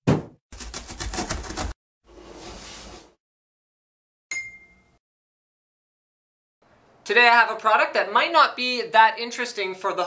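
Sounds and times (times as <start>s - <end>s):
bright ding: 4.3s - 5.0s.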